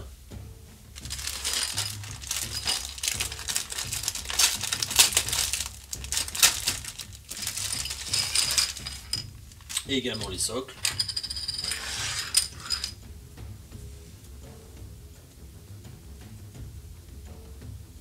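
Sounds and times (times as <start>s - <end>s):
plastic bag crinkling: 1.0s - 12.9s.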